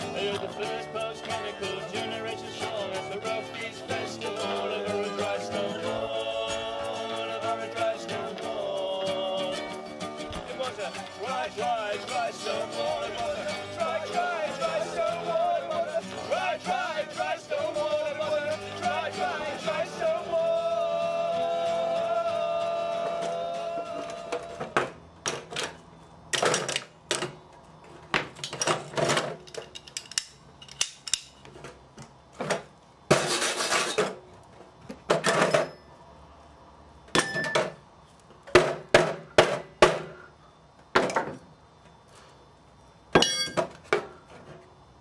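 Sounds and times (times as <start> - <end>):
acoustic guitar music: 0.0 - 24.8
metal tools clanking in a tin: 33.1 - 34.1.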